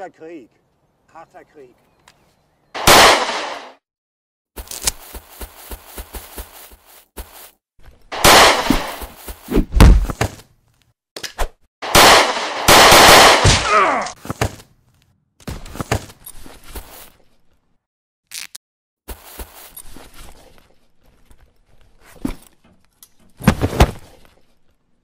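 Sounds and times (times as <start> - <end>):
gunfire: 2.8 - 3.8, 8.2 - 9.0, 11.8 - 13.7
gunshots with echoing tails: 2.8 - 3.8, 8.2 - 9.0, 11.8 - 13.7.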